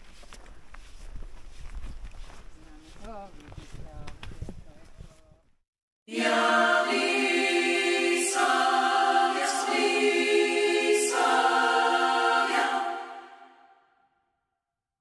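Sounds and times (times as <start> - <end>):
choir singing held chords: 6.1 - 13.9.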